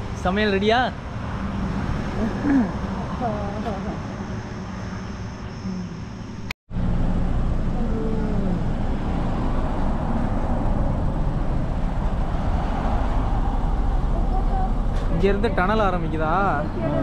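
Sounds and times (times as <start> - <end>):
moving vehicle road and engine noise: 0.0 - 17.0.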